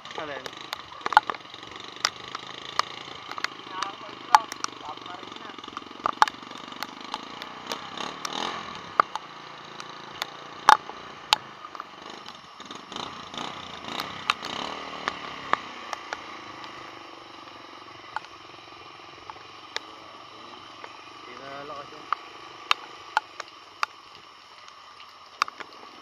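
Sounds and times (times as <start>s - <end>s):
motorcycle engine idling: 0.0s - 26.0s
sharp clicks and knocks: 0.1s - 18.4s, 19.2s - 20.0s, 25.4s - 25.8s.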